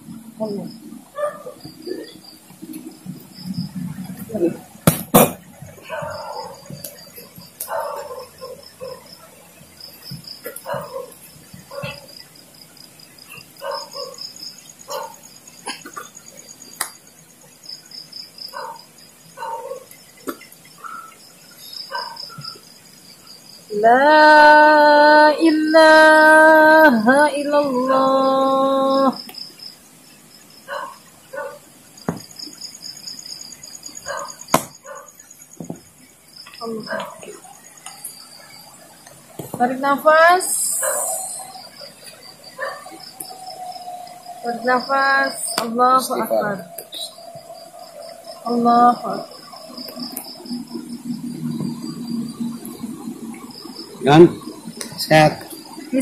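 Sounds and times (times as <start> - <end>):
crickets trilling: 0.0 - 56.0
sharp knocks: 4.8 - 5.4, 34.5 - 34.8.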